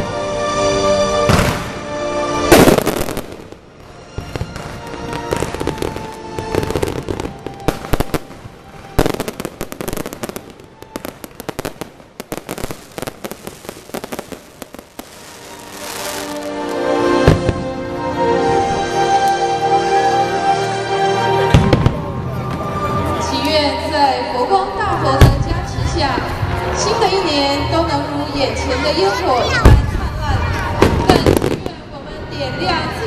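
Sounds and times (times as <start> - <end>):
music playing: 0.0 - 33.0
fireworks booming: 1.2 - 1.8, 2.5 - 16.6, 17.2 - 17.8, 21.5 - 22.2, 29.6 - 31.8
fireworks crackling: 1.3 - 17.8, 29.5 - 31.9.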